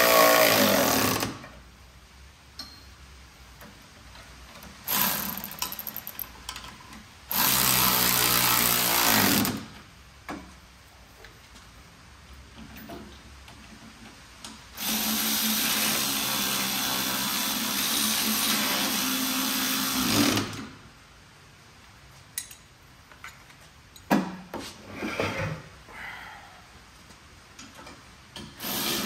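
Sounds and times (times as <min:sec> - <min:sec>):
metal clinks of tool handling: 0:02.6 - 0:03.0, 0:22.4 - 0:24.1
pneumatic air ratchet running: 0:04.8 - 0:06.3, 0:28.5 - 0:29.0.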